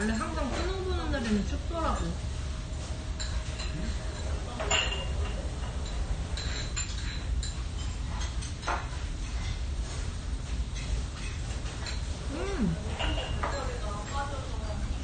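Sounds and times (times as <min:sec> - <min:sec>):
steady low hum: 0:00.0 - 0:15.0
chopsticks clinking on dishes: 0:03.2 - 0:09.6, 0:12.9 - 0:14.4.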